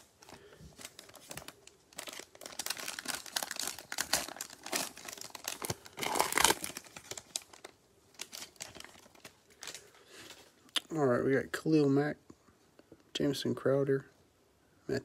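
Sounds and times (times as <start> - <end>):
plastic wrapper crinkling: 0.0 - 10.6
pack tearing open: 0.8 - 9.9.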